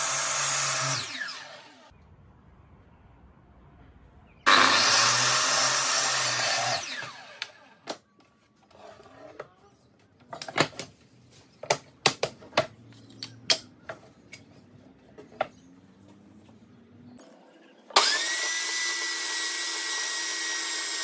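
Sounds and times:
mitre saw motor winding down: 4.5s - 7.8s, 18.0s - 21.0s.

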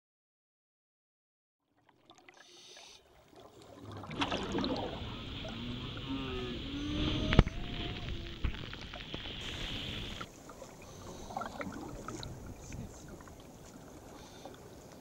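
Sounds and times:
water splashing and gurgling: 1.7s - 15.0s
surf breaking: 3.7s - 14.0s.

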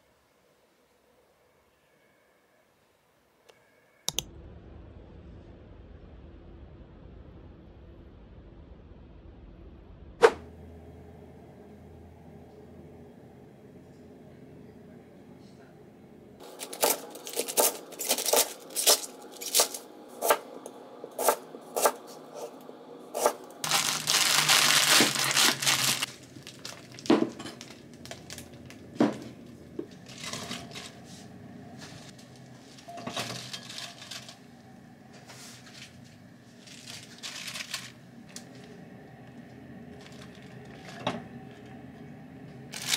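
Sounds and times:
vegetables knocking and rustling: 23.2s - 30.8s.

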